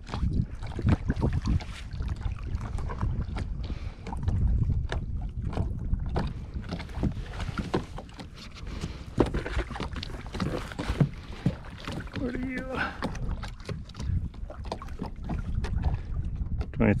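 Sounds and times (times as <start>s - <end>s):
wind rumbling on microphone: 0.0s - 17.0s
knocks and rustles: 6.7s - 12.2s.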